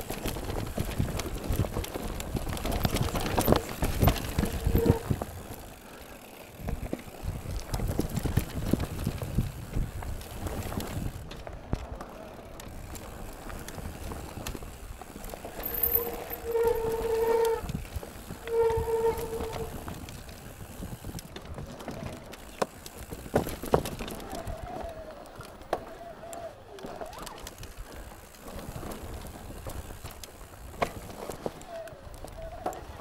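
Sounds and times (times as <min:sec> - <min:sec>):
bike frame rattling and knocking: 0:00.0 - 0:12.0, 0:12.6 - 0:25.8.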